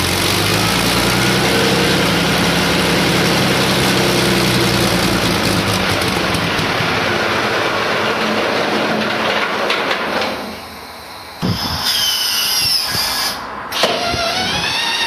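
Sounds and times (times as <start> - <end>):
aircraft engine running: 0.0 - 10.3.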